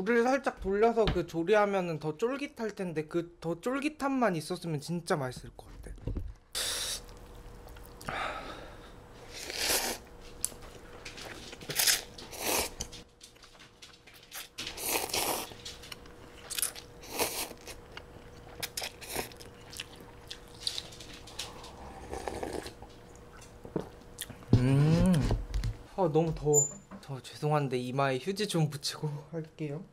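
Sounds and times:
slurping noodles: 0:09.3 - 0:10.1, 0:11.7 - 0:12.8, 0:14.8 - 0:15.5, 0:17.0 - 0:17.8, 0:21.6 - 0:22.8
chewing: 0:09.4 - 0:23.6.

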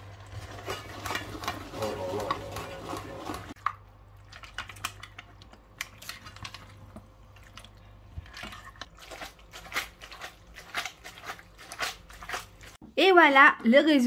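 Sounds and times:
wet squelches: 0:00.0 - 0:12.8.

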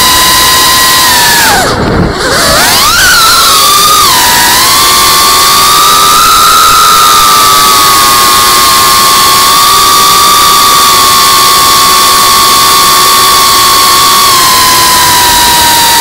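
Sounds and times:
drone propellers whining: 0:00.0 - 0:16.0
rushing air noise: 0:00.0 - 0:16.0.

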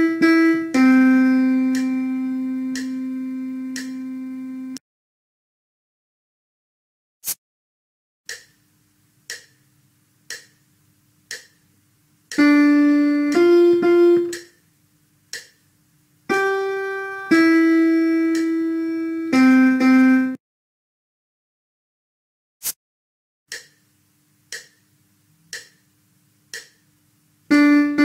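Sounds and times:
metronome clicks: 0:00.0 - 0:04.8, 0:08.3 - 0:08.6, 0:09.3 - 0:09.6, 0:10.3 - 0:10.6, 0:11.3 - 0:11.6, 0:12.3 - 0:14.6, 0:15.3 - 0:15.6, 0:16.3 - 0:20.3, 0:23.5 - 0:23.8, 0:24.5 - 0:24.8, 0:25.5 - 0:25.8, 0:26.5 - 0:26.8
piano melody: 0:00.0 - 0:04.8, 0:12.4 - 0:14.5, 0:16.3 - 0:20.4, 0:27.5 - 0:28.0.

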